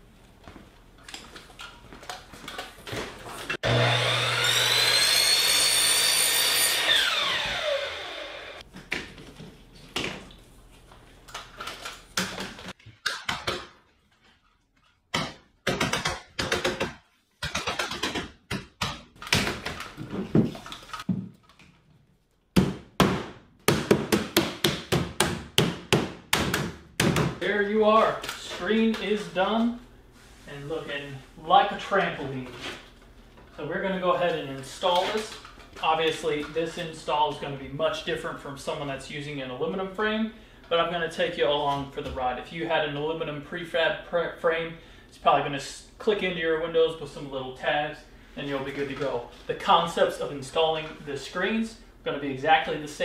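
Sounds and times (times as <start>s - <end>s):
power tool motor winding down: 3.6s - 8.6s.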